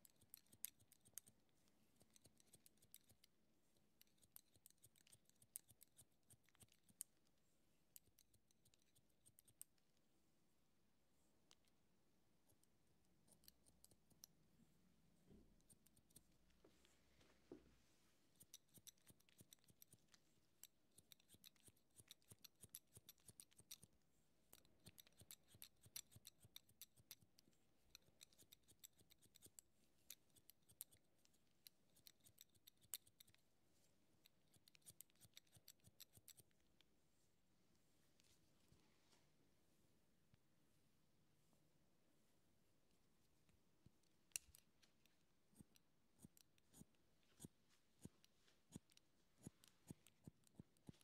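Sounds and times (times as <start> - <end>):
scissors snipping hair: 0.0 - 3.3, 4.0 - 7.2, 12.5 - 14.3, 15.5 - 16.6, 18.3 - 23.9, 24.5 - 33.4, 34.2 - 36.6, 44.2 - 51.0.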